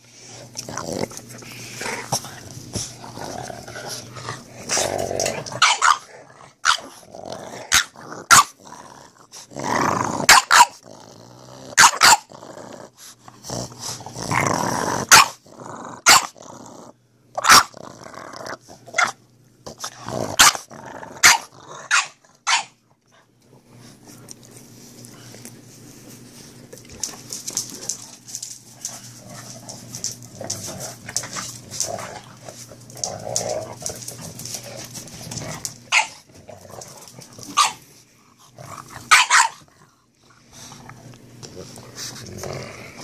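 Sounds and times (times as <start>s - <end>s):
dogs play growling: 0.0s - 17.1s, 17.7s - 19.0s, 19.6s - 22.4s, 23.0s - 43.0s
dog barking: 10.3s - 10.8s, 11.8s - 12.3s, 15.1s - 15.4s, 16.1s - 16.3s, 17.4s - 17.7s, 21.2s - 22.8s, 35.9s - 36.2s, 37.6s - 37.8s, 39.1s - 39.6s.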